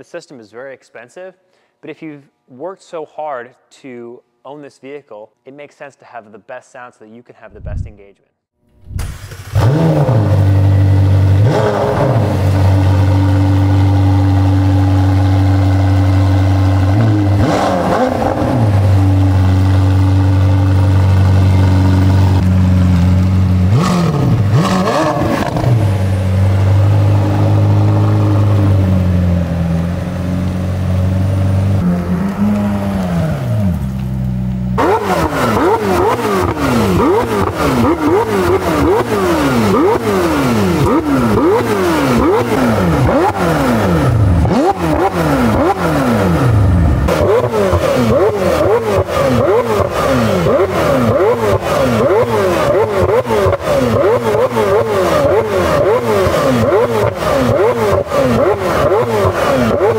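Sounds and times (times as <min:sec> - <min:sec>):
car engine revving: 0:08.8 - 0:59.9.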